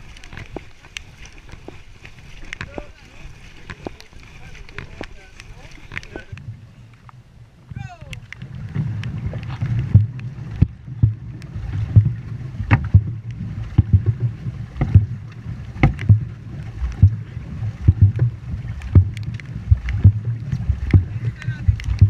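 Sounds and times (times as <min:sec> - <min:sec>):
paddles splashing water: 0:00.0 - 0:22.0
steady low rumble: 0:06.2 - 0:22.0.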